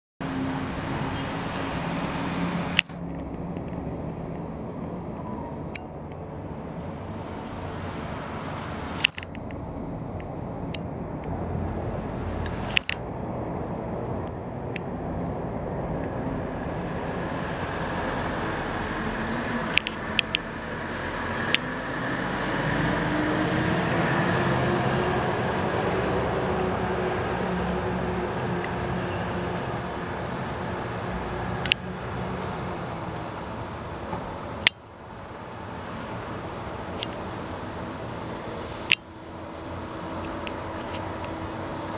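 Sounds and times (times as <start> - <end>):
distant motor rumble: 0.2 - 41.9
distant traffic hum: 0.2 - 41.9
sharp clicks: 2.7 - 7.0, 8.4 - 11.4, 12.3 - 13.1, 14.1 - 16.3, 19.7 - 20.5.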